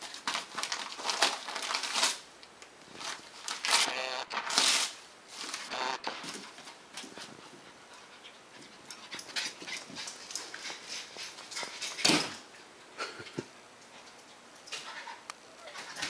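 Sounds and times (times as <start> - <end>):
dog panting: 6.5 - 12.0.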